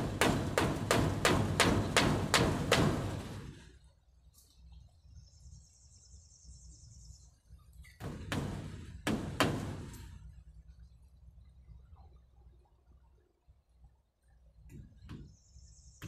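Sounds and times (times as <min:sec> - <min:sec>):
hammer striking wood: 0:00.0 - 0:03.5, 0:08.0 - 0:10.0.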